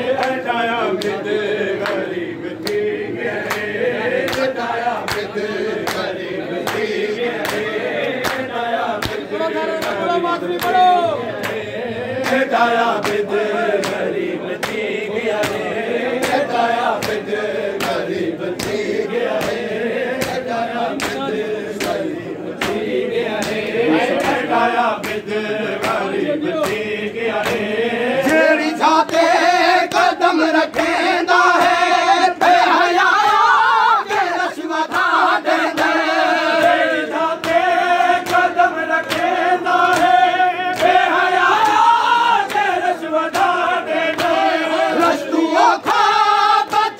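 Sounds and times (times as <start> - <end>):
men chanting in unison: 0.0 - 46.9
hands slapping bare chests: 1.8 - 9.2, 12.2 - 26.8, 34.1 - 45.1.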